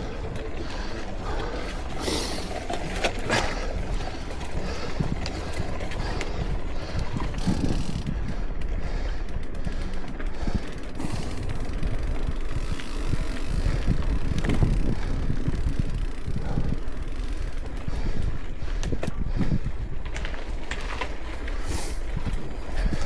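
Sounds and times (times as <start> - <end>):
bike drivetrain clicks and rattles: 0.0 - 23.0
bike tyres humming: 0.0 - 23.0
wind buffeting microphone: 0.0 - 23.0.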